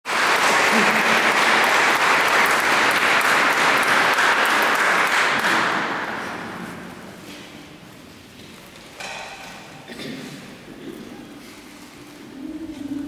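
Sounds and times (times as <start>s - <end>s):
audience applauding: 0.1s - 6.3s.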